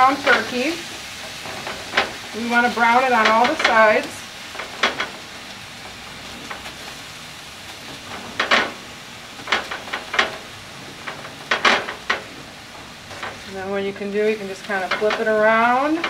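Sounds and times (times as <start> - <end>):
spatula scraping and knocking pan: 0.0 - 7.1, 7.7 - 16.0
meat sizzling in a skillet: 0.0 - 16.0.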